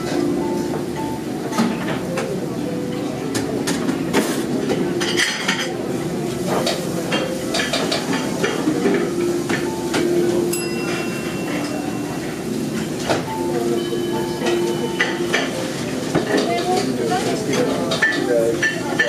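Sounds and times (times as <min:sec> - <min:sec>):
cutlery clinking on plates: 0:03.3 - 0:05.8, 0:06.4 - 0:19.0
cafe din: 0:06.6 - 0:16.9.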